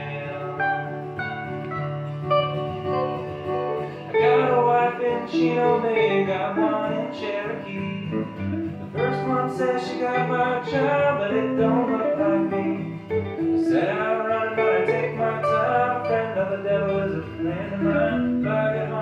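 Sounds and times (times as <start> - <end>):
acoustic guitar strumming: 0.0 - 19.0.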